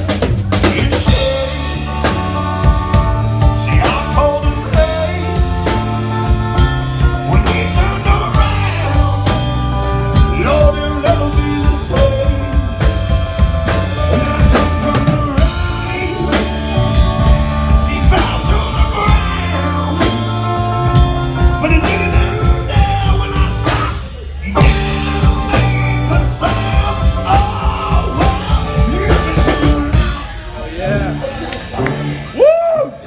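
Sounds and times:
drums: 0.0 - 33.0
electric bass: 0.0 - 33.0
man singing into a microphone: 0.5 - 2.7, 3.4 - 6.1, 7.0 - 30.4.

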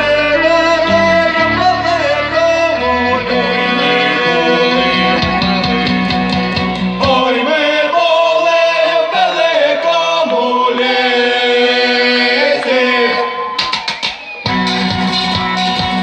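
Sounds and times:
violin: 0.0 - 7.1
acoustic guitar: 0.0 - 7.4, 14.5 - 16.0
bass and drums: 0.0 - 7.4, 13.6 - 16.0
person singing: 0.0 - 13.4.

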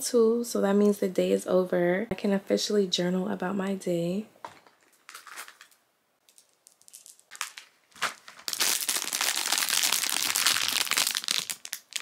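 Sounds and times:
paper or plastic crinkling: 4.9 - 12.0.

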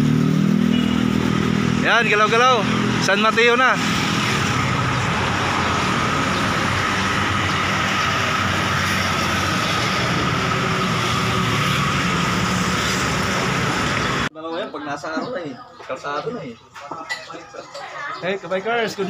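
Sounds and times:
highway traffic passing: 0.0 - 14.3.

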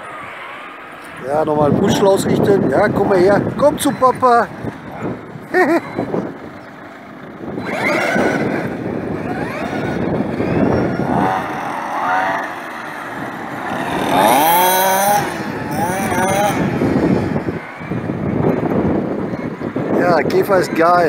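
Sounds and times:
model car motors revving: 7.0 - 17.6.

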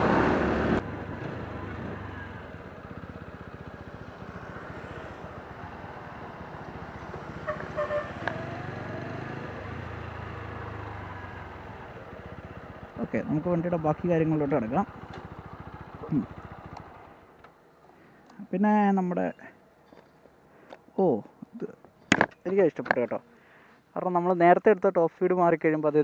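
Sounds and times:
motorcycle engine at low revs: 0.0 - 17.6.

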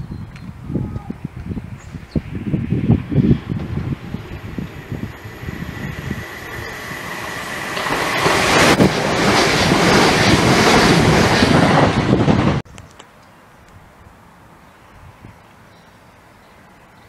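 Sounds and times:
train passing at speed: 2.2 - 12.6.

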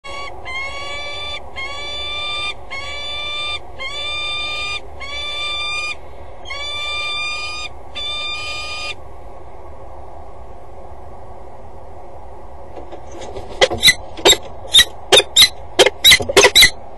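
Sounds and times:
falcon calling: 13.6 - 16.8.

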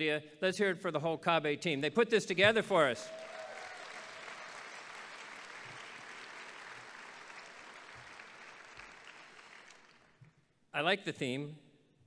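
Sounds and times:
audience applause: 3.0 - 10.2.

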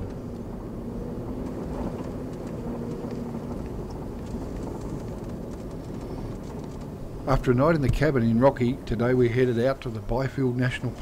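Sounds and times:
vehicle engine and road rumble: 0.0 - 11.0
light rattles: 1.3 - 9.1.

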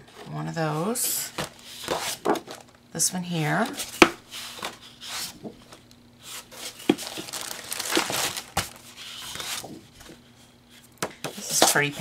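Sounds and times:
paper rustling: 6.3 - 10.2
paper sheets flapping: 6.6 - 9.8.

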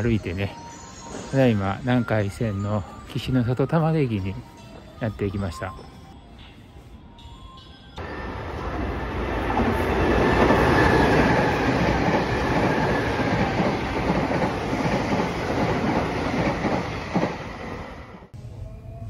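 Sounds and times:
electric train running: 7.6 - 18.6.

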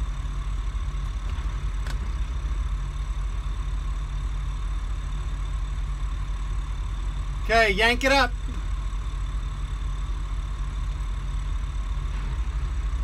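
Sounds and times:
boat engine idling: 0.0 - 13.0.

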